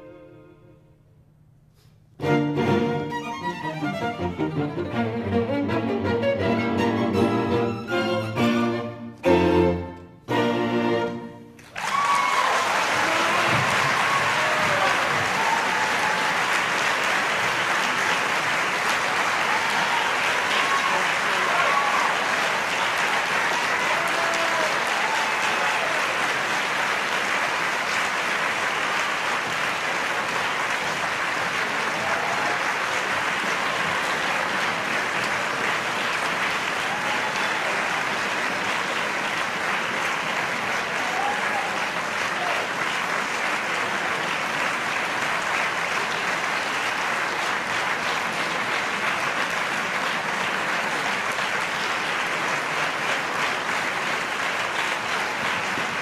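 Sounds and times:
large audience applauding: 11.6 - 56.0.

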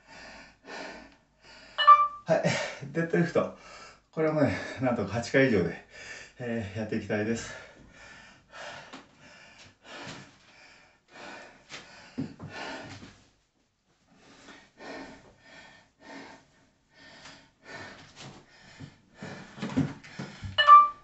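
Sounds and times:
man breathing heavily: 0.0 - 1.8, 3.6 - 4.8, 5.9 - 6.4, 7.4 - 13.2, 14.1 - 20.6.

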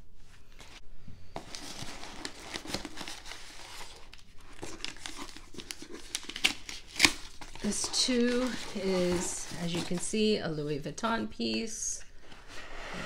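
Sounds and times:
tissue paper rustling and crinkling: 0.6 - 10.4.

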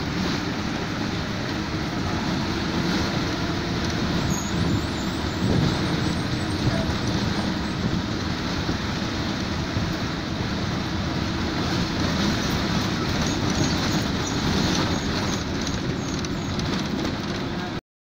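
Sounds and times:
bus engine drone: 0.0 - 17.8
low road rumble: 0.0 - 17.8
wind noise: 0.0 - 17.8
rattle: 12.5 - 17.5.

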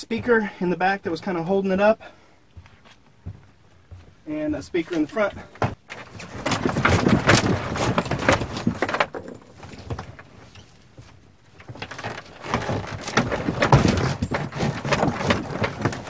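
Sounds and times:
overhead compartment knocking and rattling: 5.5 - 10.3, 11.6 - 16.0.

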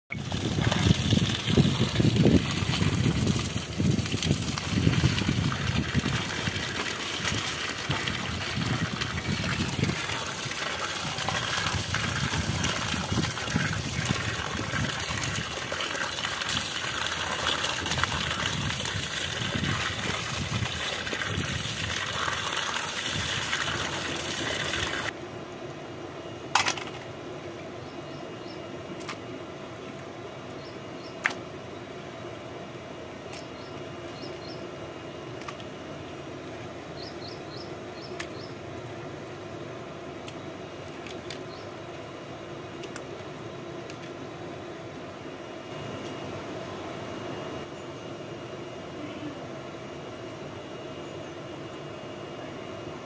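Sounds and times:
water pouring and splashing: 0.1 - 25.1.

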